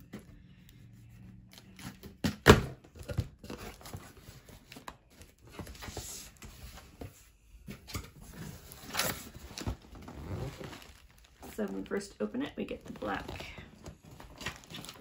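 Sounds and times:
packing paper rustling: 8.3 - 15.0.

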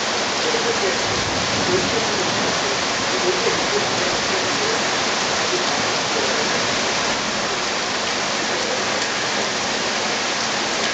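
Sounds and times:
heavy rain on leaves: 0.0 - 10.9.

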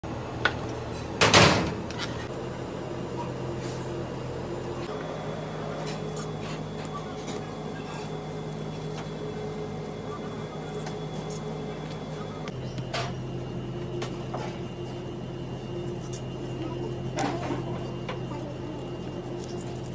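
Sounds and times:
kitchen machinery humming: 0.0 - 19.9.

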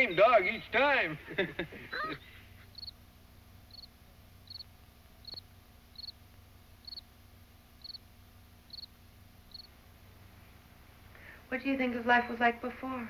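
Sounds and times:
low steady hum: 0.0 - 13.0
cricket chirping: 2.7 - 9.8.

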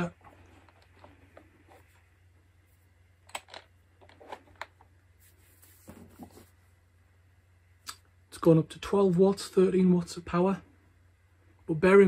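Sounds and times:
soft noises: 0.0 - 6.9
low steady hum: 0.0 - 12.0.

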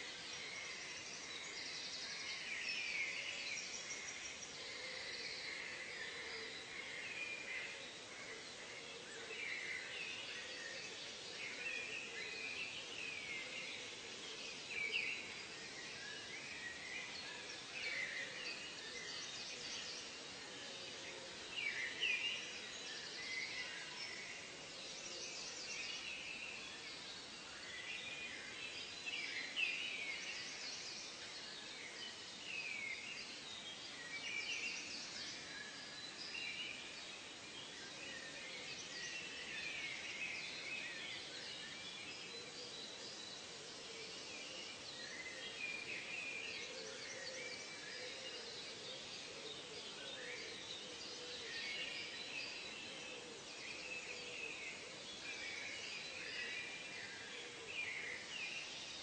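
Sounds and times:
faint steady hiss: 0.0 - 59.0
many birds chirping: 0.0 - 59.0.

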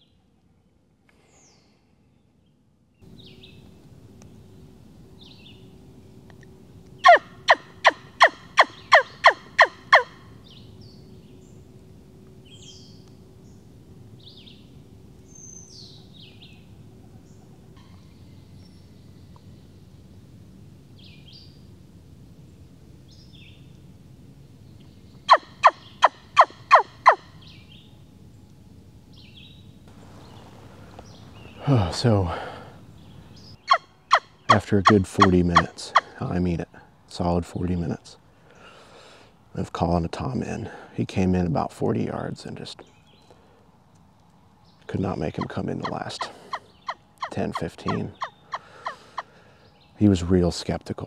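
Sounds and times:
songbirds chirping: 0.0 - 51.0
turkey call yelps: 7.0 - 10.3, 25.3 - 27.3, 33.6 - 36.2, 45.4 - 49.3.

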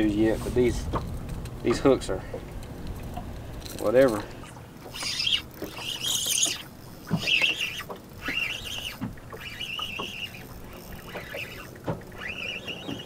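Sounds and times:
fishing reel whirring: 2.7 - 13.0
fishing line whizzing out: 4.8 - 13.0.

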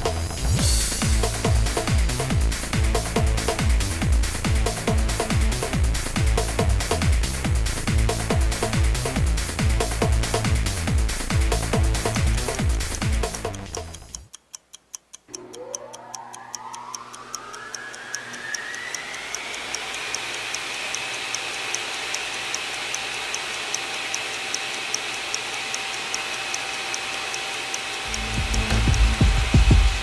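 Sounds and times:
hiss: 0.0 - 12.6
electronic music: 0.0 - 14.2, 15.3 - 21.3, 28.0 - 30.0
clock-like ticking: 0.0 - 30.0
tone gliding upward: 15.3 - 21.3.

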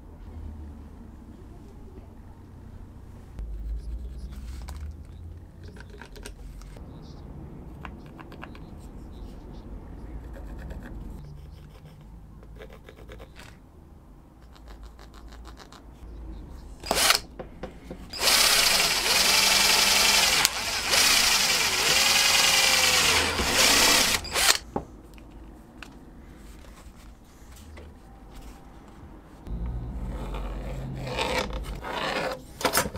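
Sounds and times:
cordless drill whining: 16.8 - 17.2, 18.1 - 24.6.

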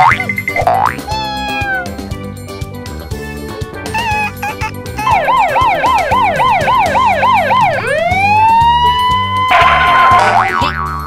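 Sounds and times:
emergency vehicle siren: 5.1 - 10.3.

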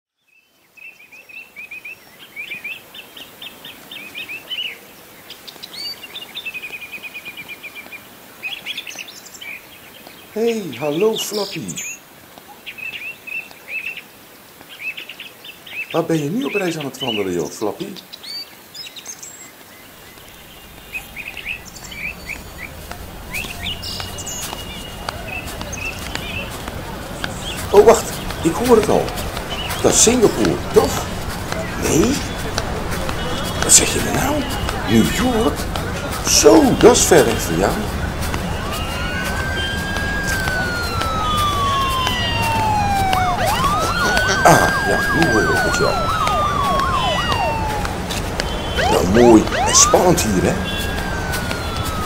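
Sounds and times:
songbirds chirping and trilling: 0.1 - 52.0
low city rumble: 19.8 - 52.0.

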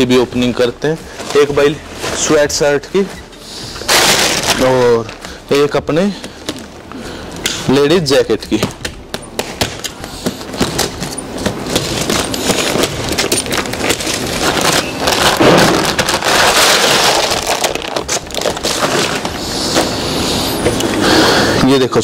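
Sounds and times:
plastic wrapping crinkling and tearing: 0.5 - 3.1, 3.8 - 5.7, 9.6 - 20.7.

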